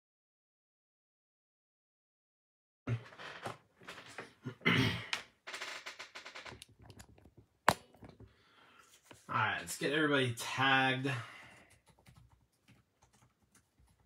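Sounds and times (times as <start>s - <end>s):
handling clicks and rattles: 6.4s - 8.3s.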